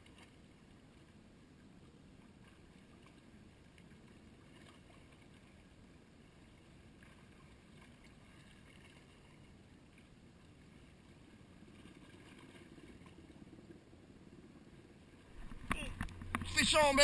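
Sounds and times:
water lapping against rocks: 15.2s - 17.0s.

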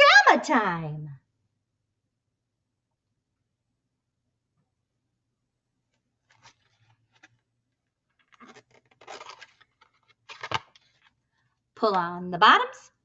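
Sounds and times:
cardboard pages rustling: 5.8s - 11.4s.

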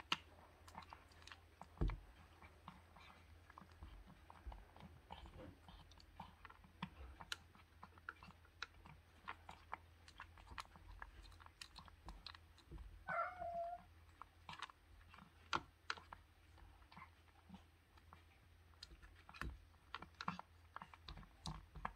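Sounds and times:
cat chewing and smacking: 0.0s - 21.9s
cat vocalization: 13.0s - 14.0s.

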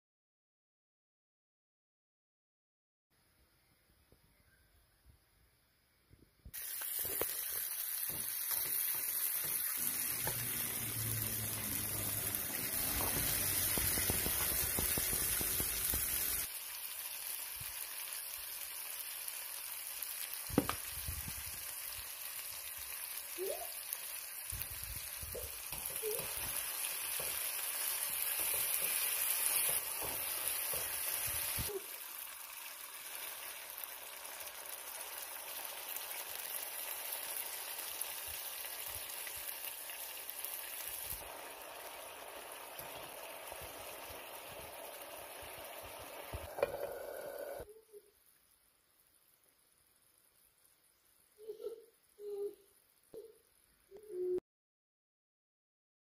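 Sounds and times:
food sizzling in frying pan: 6.5s - 47.7s.

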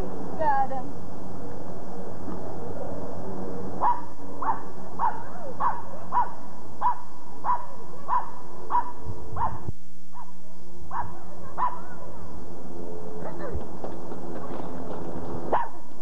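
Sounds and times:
dog barking: 3.8s - 12.3s, 15.5s - 15.8s.

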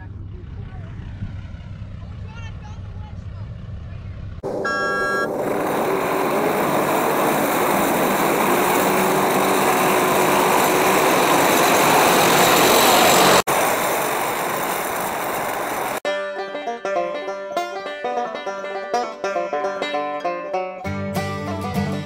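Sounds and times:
diesel engines running hard: 0.0s - 16.0s
banjo music: 16.0s - 22.0s.

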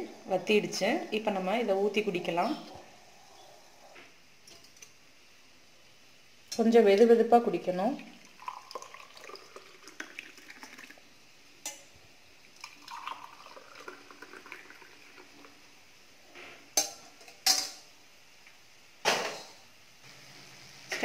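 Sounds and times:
water pouring into mugs: 7.9s - 11.1s, 12.4s - 15.8s.

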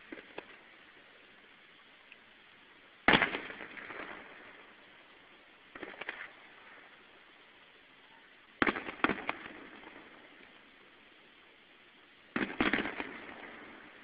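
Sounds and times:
distant fireworks bangs: 3.0s - 4.9s, 5.7s - 7.0s, 8.6s - 10.6s, 12.3s - 14.0s.

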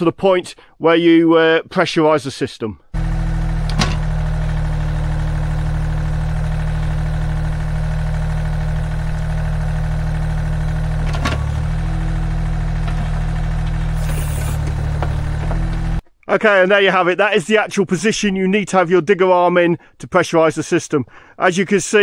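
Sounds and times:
excavator diesel engine running: 3.0s - 16.0s
hydraulics lifting boom: 3.0s - 16.0s.

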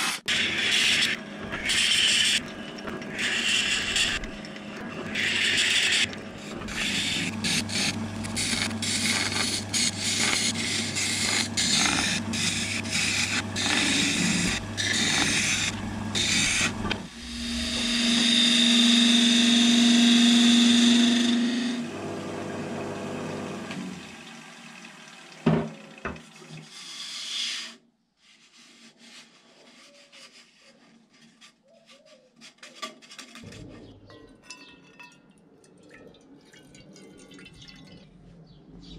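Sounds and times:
wood lathe motor hum: 0.4s - 26.5s
sanding disc rasping on wood: 5.1s - 21.8s
gouge cutting wood with hiss: 5.1s - 21.9s.

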